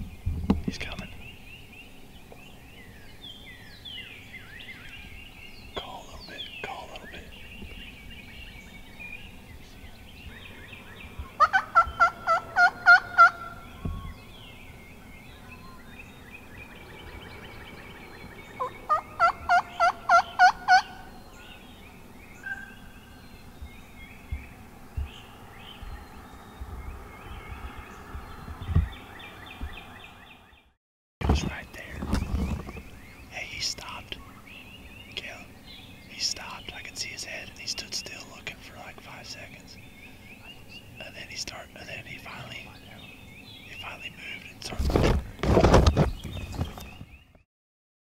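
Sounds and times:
songbirds chirping: 0:00.0 - 0:47.4
turkey gobbling: 0:11.4 - 0:13.6, 0:18.6 - 0:21.1.

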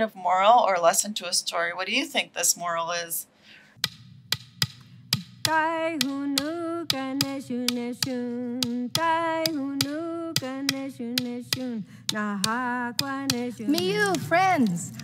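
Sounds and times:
wooden clapper stick clicks: 0:03.8 - 0:14.7
woman singing long notes: 0:05.5 - 0:15.0.

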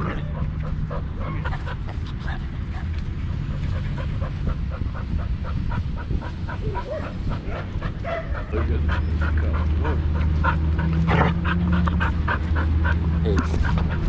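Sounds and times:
dog panting hard: 0:00.0 - 0:14.0
dog whimpering: 0:06.5 - 0:12.8
dog barking: 0:08.0 - 0:08.6.

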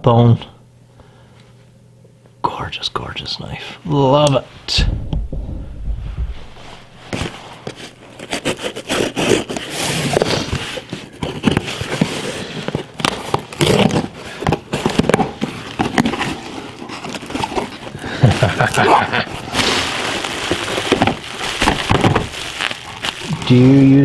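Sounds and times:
knife slitting packing tape: 0:08.2 - 0:10.4, 0:13.1 - 0:14.1
cardboard flaps handled: 0:19.4 - 0:23.3.

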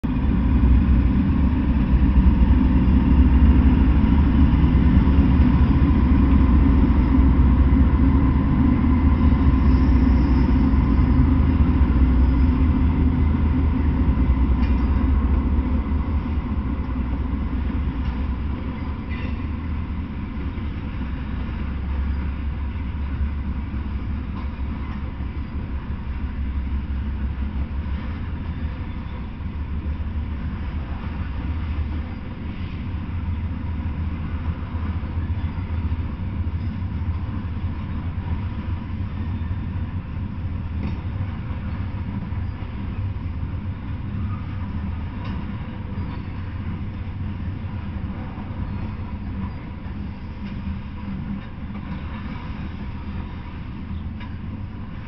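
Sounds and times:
diesel locomotives passing: 0:00.0 - 0:55.0.

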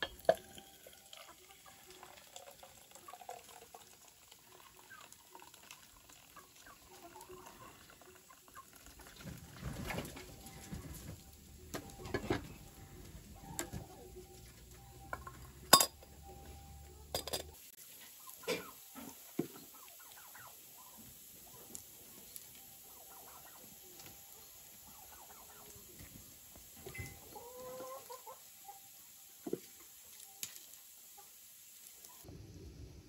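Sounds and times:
chickens and turkey clucking: 0:04.6 - 0:05.0, 0:06.2 - 0:31.4.

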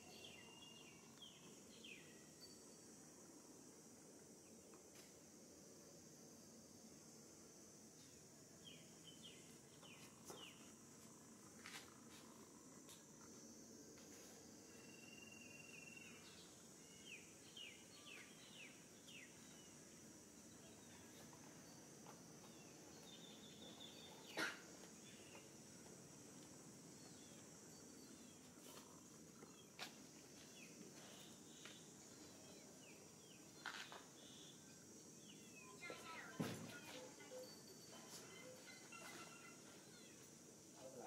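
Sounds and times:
steady high hiss: 0:00.0 - 0:41.0
faint chirps: 0:14.1 - 0:25.6, 0:26.4 - 0:41.0.

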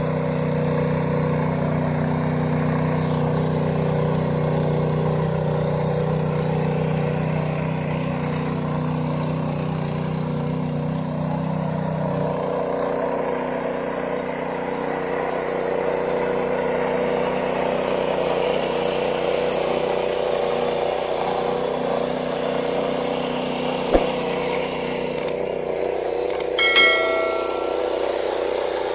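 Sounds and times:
clicks and short chime: 0:26.3 - 0:28.4.

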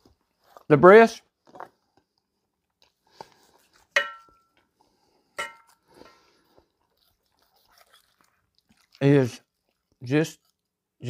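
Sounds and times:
knife clinking on metal skillet: 0:04.0 - 0:04.5, 0:05.4 - 0:05.8
knife crunching through crisp skin: 0:05.7 - 0:09.2.

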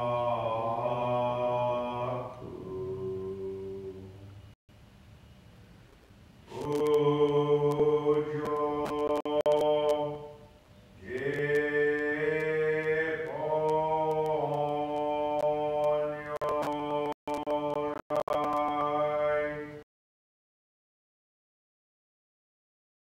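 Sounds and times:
man chanting: 0:00.0 - 0:04.2, 0:06.5 - 0:10.4, 0:11.0 - 0:19.8.

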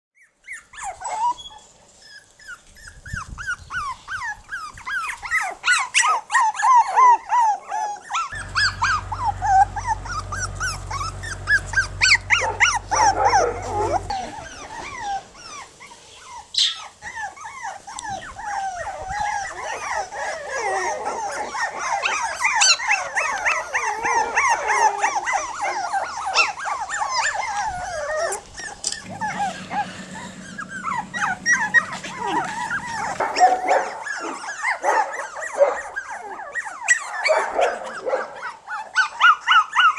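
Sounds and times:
puppies crying: 0:00.2 - 0:39.9
low steady hum: 0:08.3 - 0:15.5, 0:28.8 - 0:34.4.

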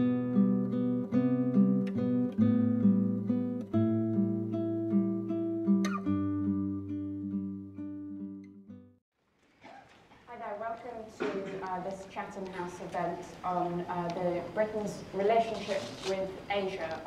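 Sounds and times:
acoustic guitar music: 0:00.0 - 0:09.0.

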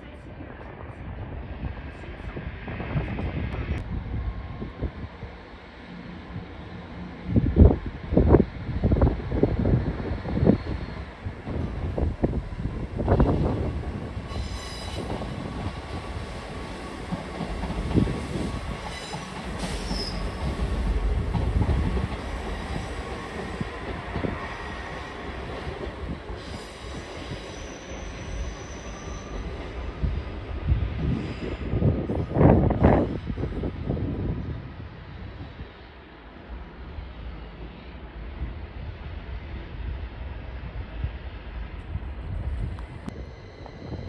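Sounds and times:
train rumbling on rails: 0:00.0 - 0:44.0
train wheels squealing: 0:10.0 - 0:11.3, 0:14.2 - 0:16.4, 0:17.7 - 0:21.0, 0:26.3 - 0:30.3, 0:43.1 - 0:44.0.

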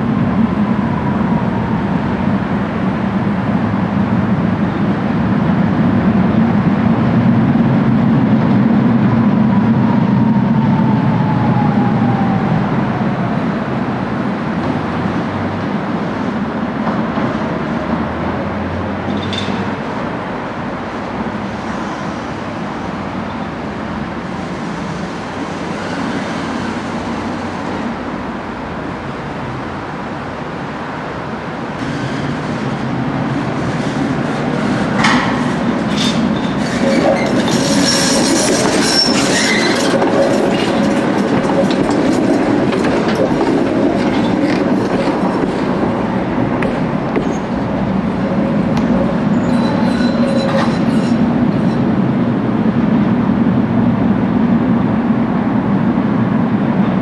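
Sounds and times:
tram rumbling past: 0:00.0 - 0:57.0
tram wheel squeal: 0:21.3 - 0:23.6, 0:24.2 - 0:28.0, 0:31.8 - 0:52.1
wheels clicking over rail joints: 0:33.6 - 0:51.2.

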